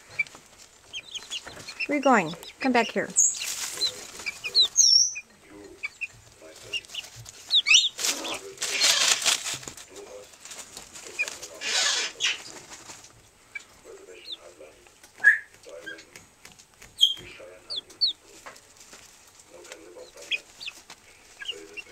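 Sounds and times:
chickens clucking softly: 0.0s - 8.9s, 16.8s - 18.7s, 19.5s - 21.9s
chickens wing-flapping: 3.4s - 4.8s, 6.4s - 13.2s, 15.5s - 21.9s.

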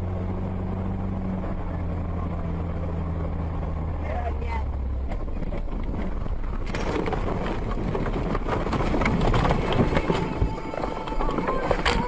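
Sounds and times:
car ploughing through snow: 5.0s - 12.0s
snow hitting windshield: 6.0s - 12.0s.

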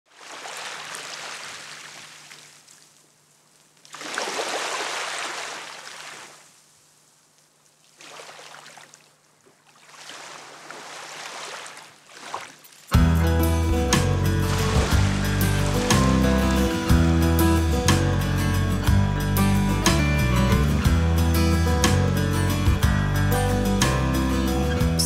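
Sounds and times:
small waves washing ashore: 0.1s - 7.1s, 7.8s - 12.9s, 13.9s - 17.7s.

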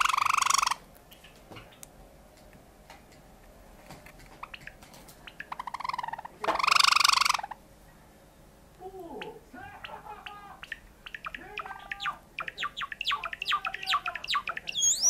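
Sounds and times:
sparrow clicking and trilling: 0.0s - 1.9s, 4.0s - 7.6s, 9.2s - 15.0s.

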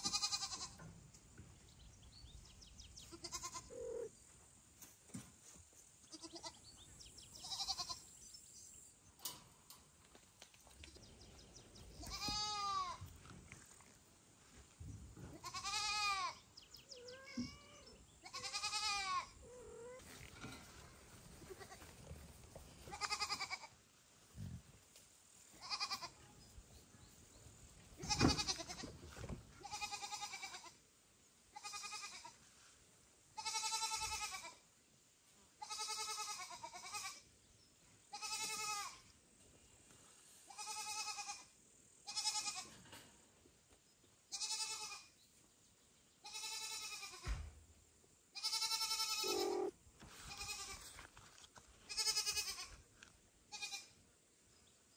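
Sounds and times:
kitten meowing loudly: 49.0s - 49.7s.

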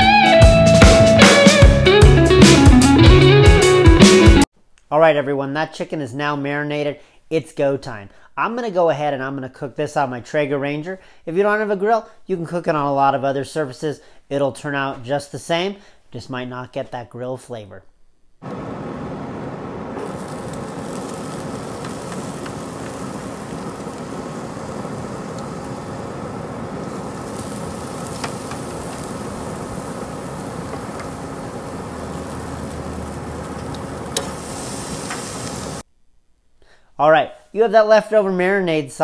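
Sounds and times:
pellet grill humming and hissing: 18.4s - 35.8s.

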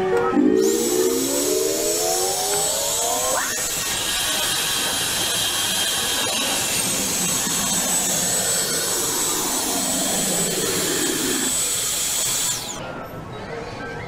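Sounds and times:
suction blower hissing: 0.6s - 12.8s
low motor hum: 6.6s - 12.8s.

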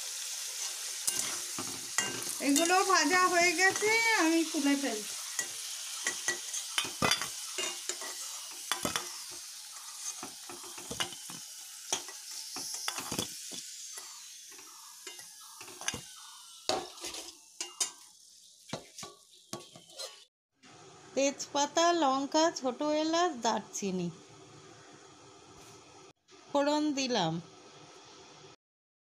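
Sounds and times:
potatoes sizzling in hot oil: 0.0s - 22.6s
spatula scraping and knocking pan: 0.6s - 4.1s, 5.1s - 18.0s, 18.7s - 20.3s.

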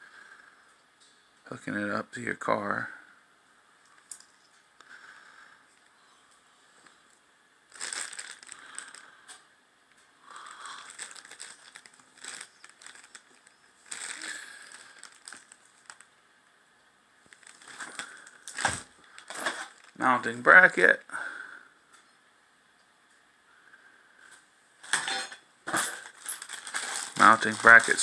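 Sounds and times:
cable and packaging crinkling: 7.7s - 9.4s, 10.3s - 16.2s, 17.2s - 20.7s, 24.8s - 28.0s.

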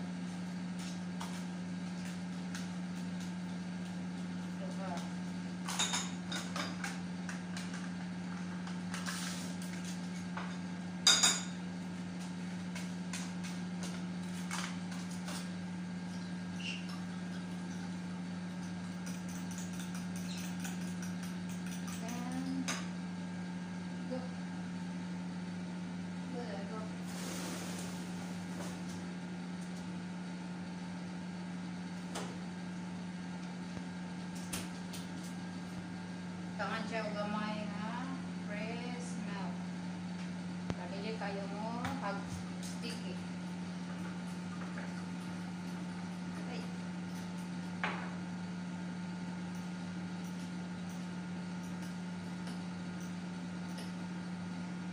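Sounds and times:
kitchen appliance humming: 0.0s - 54.9s
metal spoon clinking in bowl: 18.6s - 22.9s.

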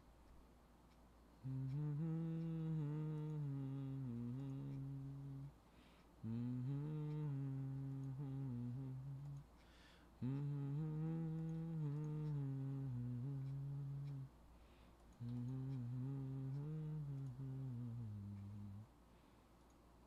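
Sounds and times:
man humming: 1.4s - 5.6s, 6.2s - 9.6s, 10.2s - 14.4s, 15.2s - 18.9s.

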